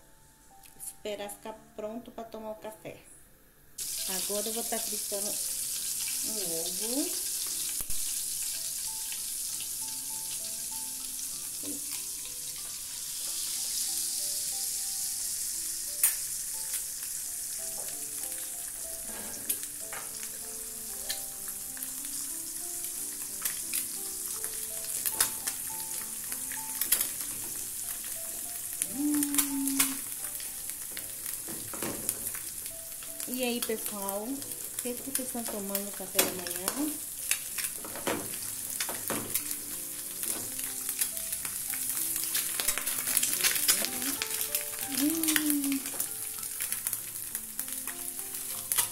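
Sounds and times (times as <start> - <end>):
egg sizzling in oil: 3.8 - 48.9.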